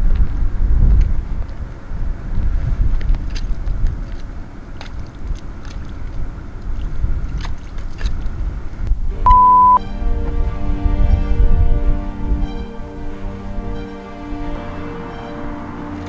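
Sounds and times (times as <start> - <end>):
wind buffeting microphone: 0.0 - 9.2
background music: 9.1 - 16.0
short loud beep: 9.2 - 9.9.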